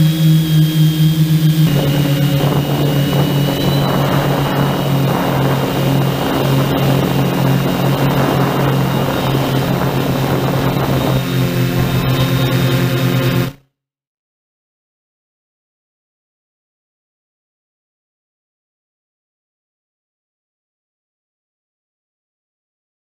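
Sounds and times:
drone propellers buzzing: 0.0 - 13.6
rushing air noise: 0.0 - 13.6.

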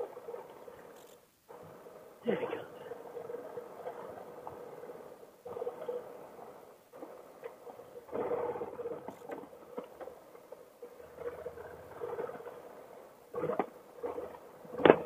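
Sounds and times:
knocks and rattles from bumps: 13.4 - 15.0.

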